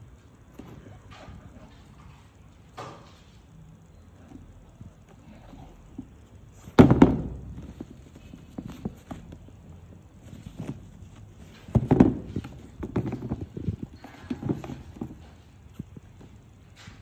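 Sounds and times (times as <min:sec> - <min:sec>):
hollow knock on cardboard box: 0:06.8 - 0:09.2, 0:11.5 - 0:15.3.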